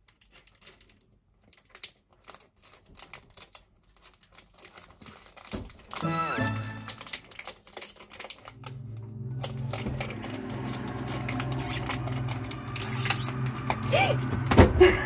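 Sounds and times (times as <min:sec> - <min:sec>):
plastic sachet crinkling and tearing: 0:00.0 - 0:14.4
low steady drone: 0:08.5 - 0:15.0.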